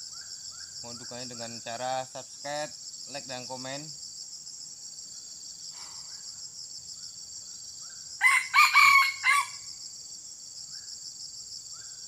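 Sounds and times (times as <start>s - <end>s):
insects droning: 0.0s - 12.0s
rooster crowing: 8.2s - 9.7s.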